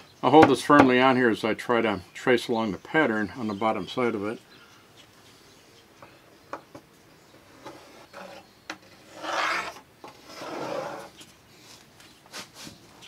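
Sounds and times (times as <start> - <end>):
pencil scraping along wood: 7.4 - 11.2.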